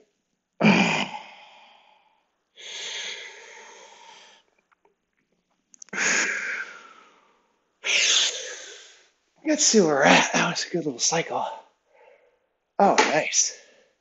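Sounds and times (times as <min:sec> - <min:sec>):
man breathing deeply: 0:00.8 - 0:04.4, 0:05.9 - 0:09.0, 0:11.9 - 0:12.4.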